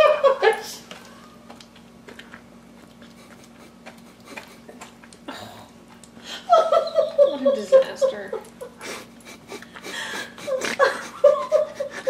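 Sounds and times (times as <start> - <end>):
dog licking and chewing: 1.0 - 6.2.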